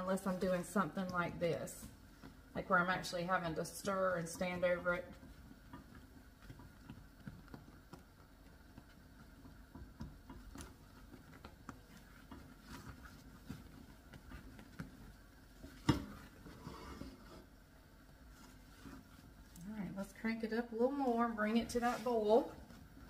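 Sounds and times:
spatula scraping saucepan: 0:15.6 - 0:17.5.

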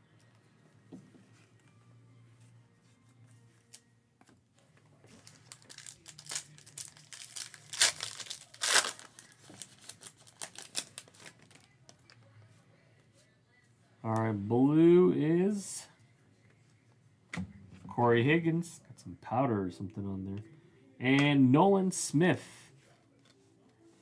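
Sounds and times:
foil wrapper tearing and crinkling: 0:05.2 - 0:11.7.

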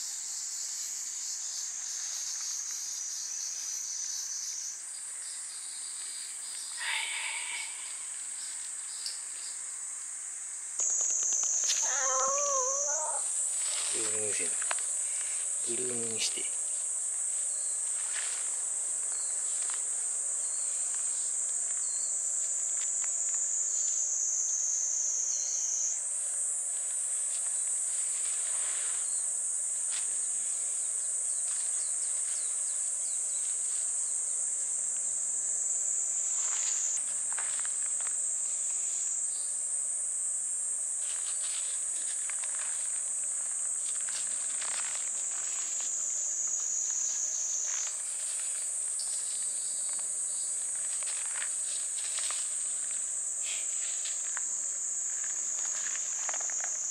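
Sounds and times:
cicadas buzzing: 0:00.0 - 0:56.9
faint rustles: 0:11.4 - 0:18.6.

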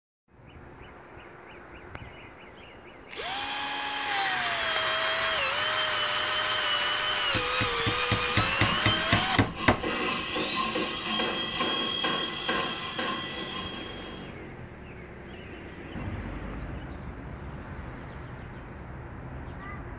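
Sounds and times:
drill motor whining: 0:03.1 - 0:14.4.

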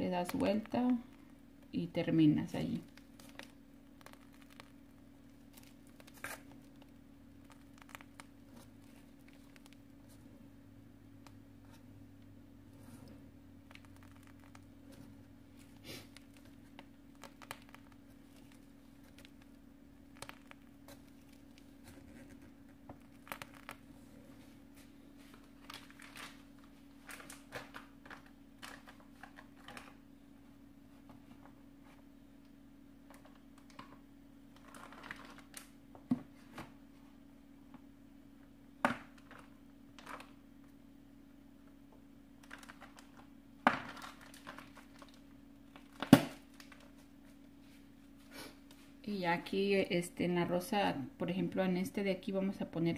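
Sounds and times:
steady low hum: 0:00.0 - 0:52.9
plastic bag crinkling: 0:02.4 - 0:10.2, 0:13.6 - 0:30.0, 0:34.6 - 0:35.8, 0:42.4 - 0:47.1.

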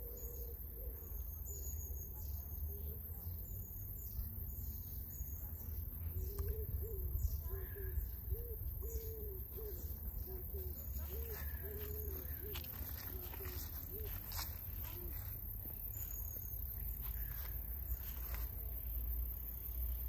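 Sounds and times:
small birds chirping: 0:00.0 - 0:20.0
dove cooing: 0:06.2 - 0:15.4.

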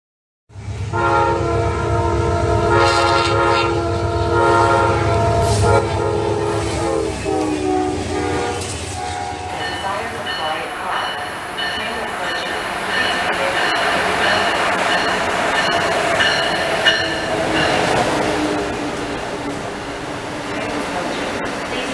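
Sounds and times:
train rumble: 0:00.5 - 0:21.9
locomotive air horn: 0:00.9 - 0:09.6.

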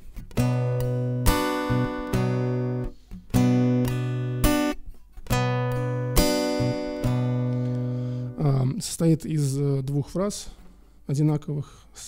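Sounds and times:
acoustic guitar strumming: 0:00.0 - 0:08.6.

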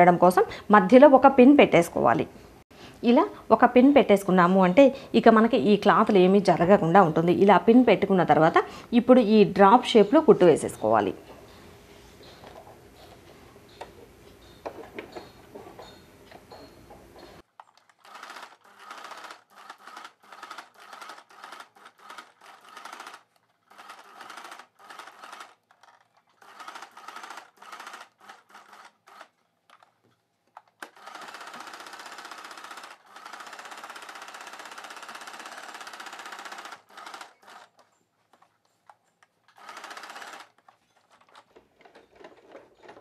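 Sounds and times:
electric sewing machine stitching: 0:18.0 - 0:29.3, 0:30.8 - 0:37.8, 0:39.5 - 0:40.6.

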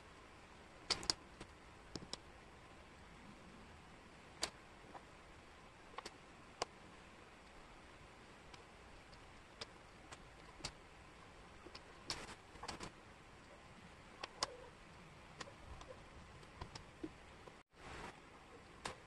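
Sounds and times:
low hiss: 0:00.0 - 0:19.0
wooden puzzle pieces clicking: 0:00.9 - 0:02.2.

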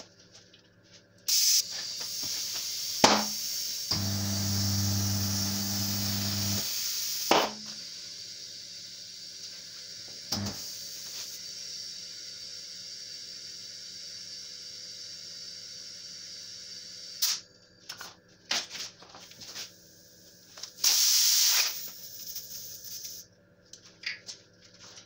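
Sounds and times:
compressed air hissing into tyre: 0:01.3 - 0:17.5, 0:20.8 - 0:23.2
sharp pops: 0:03.0 - 0:04.1, 0:07.2 - 0:07.7.

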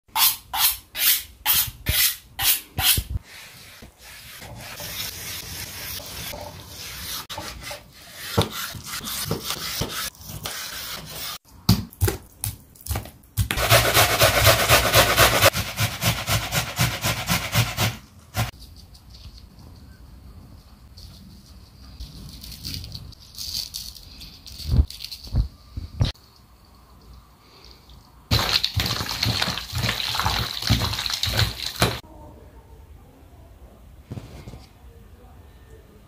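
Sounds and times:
box grater shredding vegetables: 0:13.5 - 0:18.5.

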